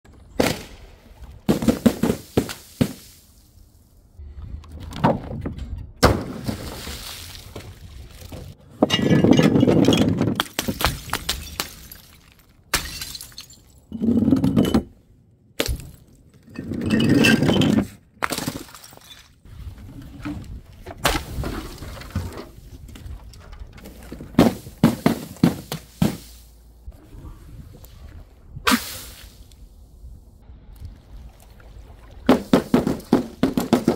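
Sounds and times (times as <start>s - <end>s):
glass bottles smashing: 8.8s - 14.9s.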